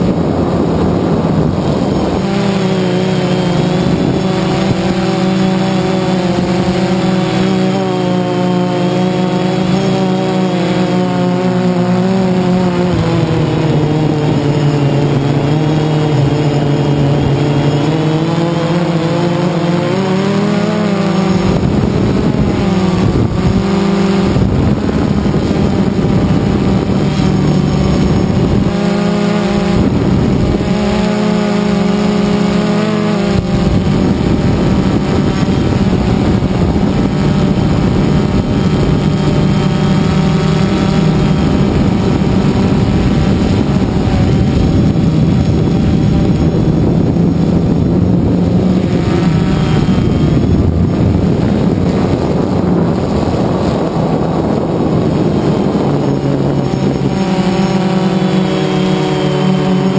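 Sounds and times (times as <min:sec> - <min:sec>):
drone motors buzzing: 0:00.0 - 0:59.9
propeller wash rushing: 0:00.0 - 0:59.9.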